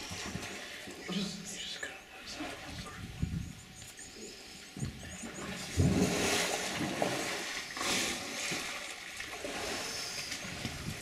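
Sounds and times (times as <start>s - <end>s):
elephants splashing water: 5.3s - 11.0s.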